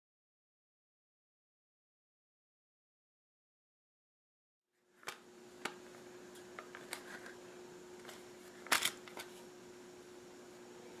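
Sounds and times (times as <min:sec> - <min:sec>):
faint steady hum: 0:04.8 - 0:11.0.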